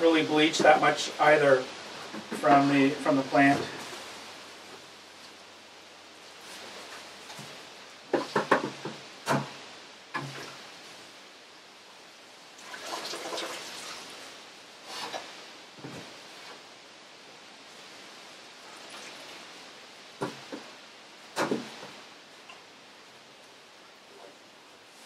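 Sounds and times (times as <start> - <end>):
liquid dripping and splashing: 12.6 - 14.2.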